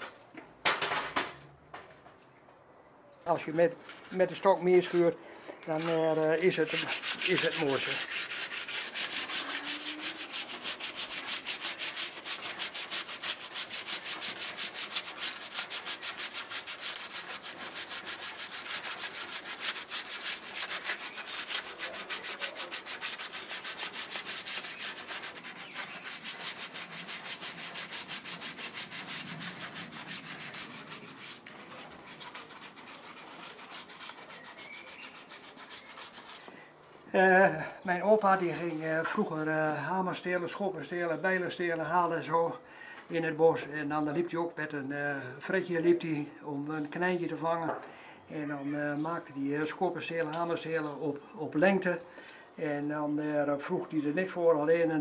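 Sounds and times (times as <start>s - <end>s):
hand-sanding wood: 5.8s - 36.4s.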